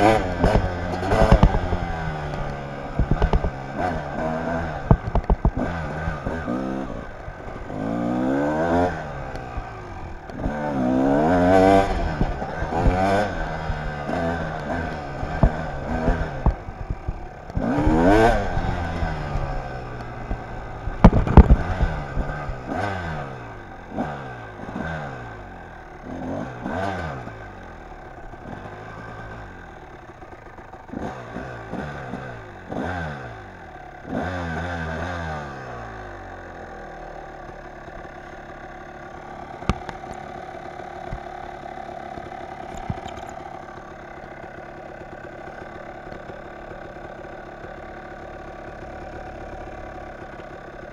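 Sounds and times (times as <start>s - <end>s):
loud clatter: 0.0s - 22.8s
dirt bike engine revving: 0.0s - 50.9s.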